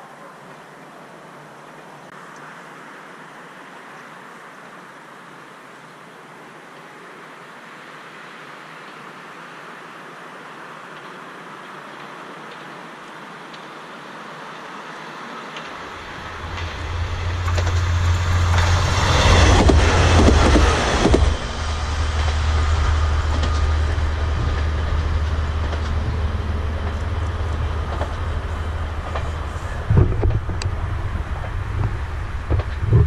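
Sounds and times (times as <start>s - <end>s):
wheel and rail noise: 8.3s - 33.0s
diesel railcar engine drone: 12.0s - 33.0s.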